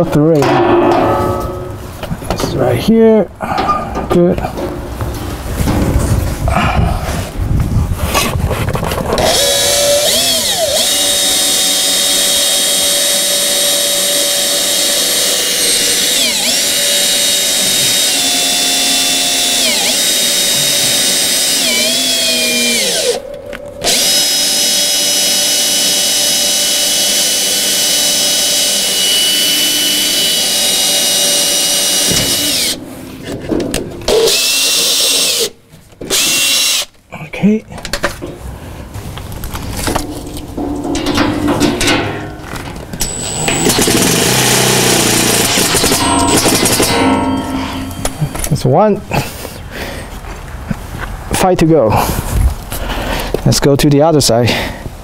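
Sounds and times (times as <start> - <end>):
cordless drill boring through metal: 9.2 - 32.8, 34.1 - 36.9, 43.0 - 47.2.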